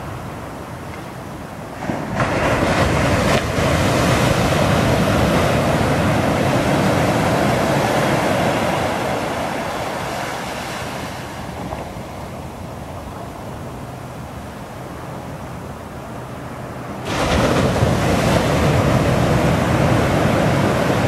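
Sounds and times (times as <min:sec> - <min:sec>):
whitewash rushing up shore: 0:00.0 - 0:21.0
wave breaking on beach: 0:01.7 - 0:12.5, 0:17.0 - 0:21.0.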